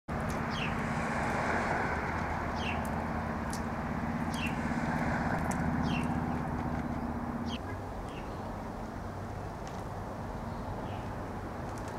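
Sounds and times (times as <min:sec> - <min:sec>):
vehicle engine running: 0:00.1 - 0:09.5
traffic rumble: 0:00.1 - 0:11.9
small bird chirping: 0:04.3 - 0:04.6, 0:05.8 - 0:08.5.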